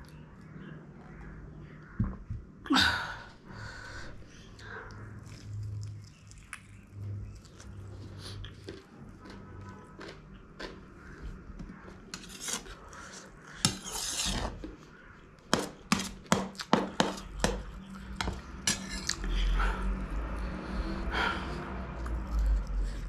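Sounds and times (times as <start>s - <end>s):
metal spoon scraping a plate: 12.1s - 14.7s, 18.2s - 19.2s.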